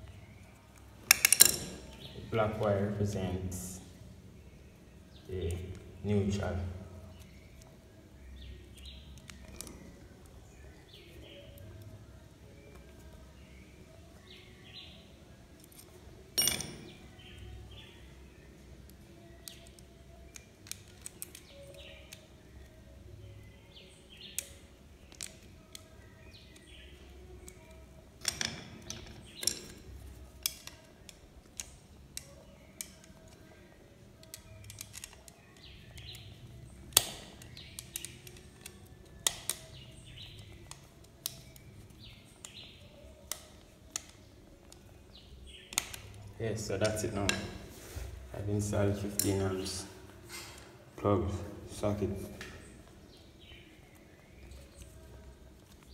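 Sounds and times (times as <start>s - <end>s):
clicks and knocks from handling wires: 34.2s - 36.3s.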